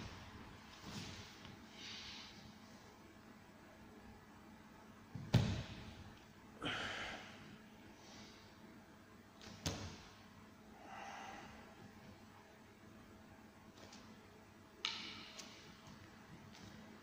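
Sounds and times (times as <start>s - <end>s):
heavy thumps on mat: 5.2s - 5.9s.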